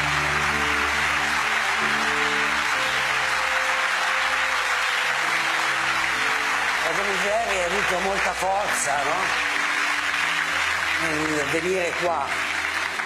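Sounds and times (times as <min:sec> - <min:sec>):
audience applauding: 0:00.0 - 0:13.0
held chords of background music: 0:00.0 - 0:13.0.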